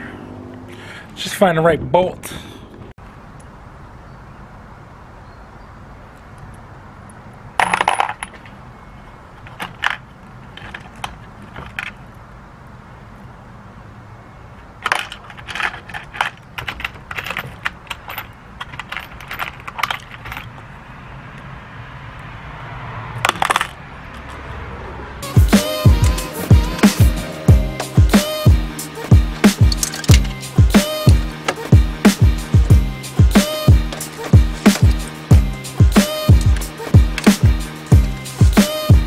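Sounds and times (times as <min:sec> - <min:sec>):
bolts and nuts clinking and rattling: 0:07.6 - 0:08.6, 0:09.3 - 0:12.1, 0:14.8 - 0:20.7, 0:23.2 - 0:23.8, 0:29.0 - 0:31.8, 0:33.6 - 0:35.4, 0:36.2 - 0:37.4.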